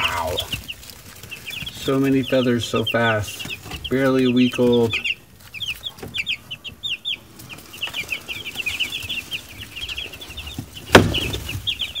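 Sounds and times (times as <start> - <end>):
chicks peeping: 0.0 - 12.0
loud knock: 10.9 - 11.4.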